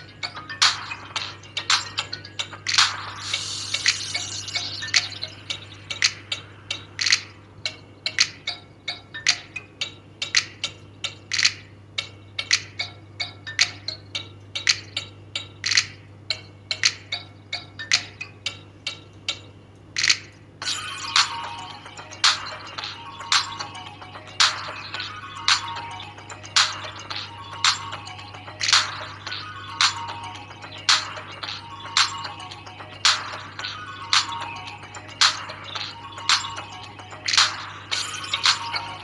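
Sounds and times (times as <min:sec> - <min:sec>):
sharp clicks and ticks: 0:00.0 - 0:20.5.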